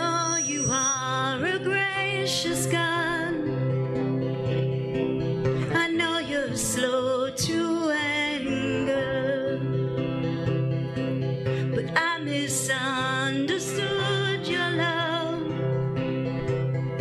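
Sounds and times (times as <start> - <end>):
person singing: 0.0 - 3.7, 5.6 - 9.9, 11.6 - 15.6
guitar accompaniment: 0.0 - 17.0.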